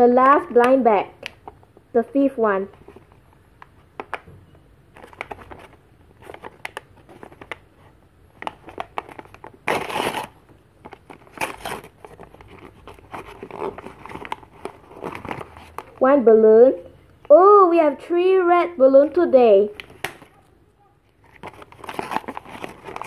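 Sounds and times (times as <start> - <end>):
paper bag crinkling: 8.5 - 16.0, 21.2 - 23.0
paper bag ripping: 8.8 - 10.4, 11.0 - 16.0, 21.2 - 23.0.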